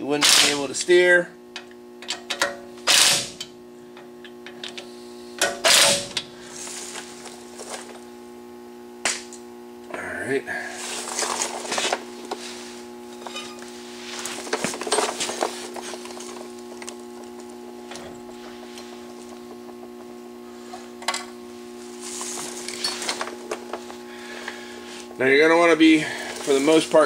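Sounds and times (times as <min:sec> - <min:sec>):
steady low hum: 0:00.0 - 0:27.0
metal clinks and scrapes: 0:13.1 - 0:13.7, 0:22.2 - 0:23.3.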